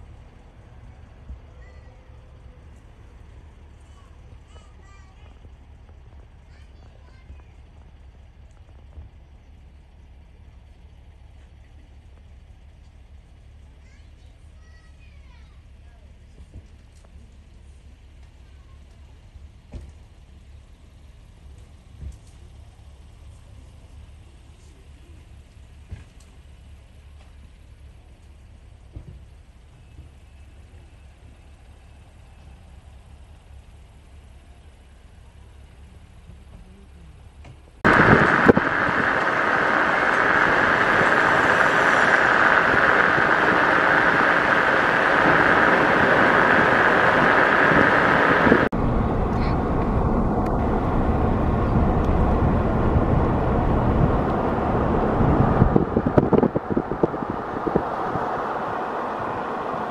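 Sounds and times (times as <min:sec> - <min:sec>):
large vehicles rushing past: 0:37.8 - 0:59.9
vehicle noise rushing: 0:37.8 - 0:59.9.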